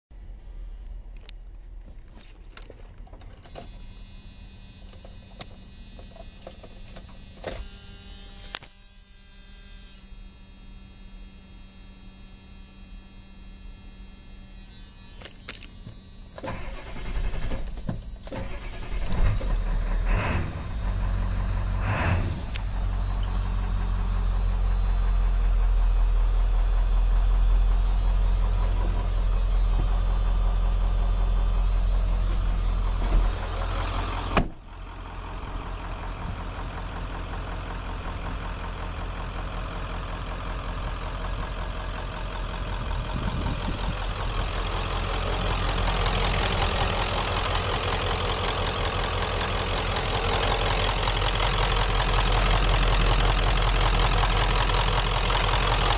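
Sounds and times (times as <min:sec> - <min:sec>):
faint steady tone: 0:03.5 - 0:34.0
diesel engine cranking and firing: 0:15.2 - 0:55.9
diesel engine idling: 0:16.5 - 0:55.9.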